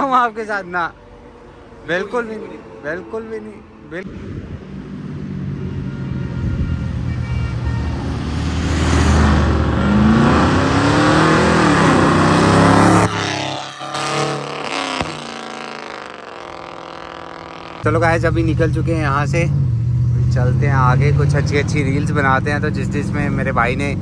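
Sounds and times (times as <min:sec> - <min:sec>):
car engine driving past: 0:08.0 - 0:22.7.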